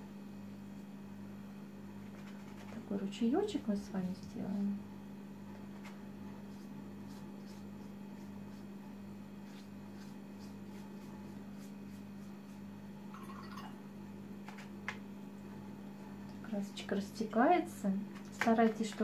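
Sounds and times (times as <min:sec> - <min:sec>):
low electrical hum: 0:00.0 - 0:19.0
paintbrush strokes on paper: 0:05.5 - 0:12.8.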